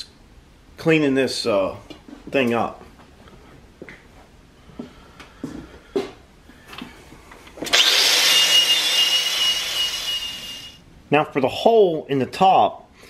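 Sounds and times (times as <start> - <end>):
angle grinder grinding metal: 7.7 - 10.8.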